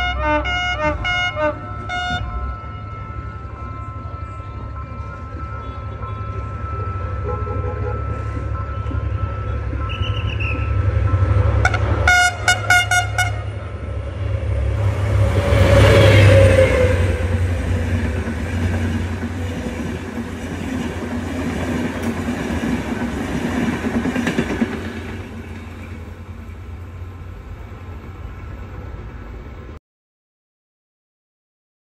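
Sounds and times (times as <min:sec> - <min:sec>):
train horn short blasts: 0:00.0 - 0:03.0, 0:07.1 - 0:08.4, 0:09.4 - 0:13.6
diesel locomotive engine rumble: 0:00.0 - 0:29.8
train wheels clattering: 0:14.8 - 0:26.2.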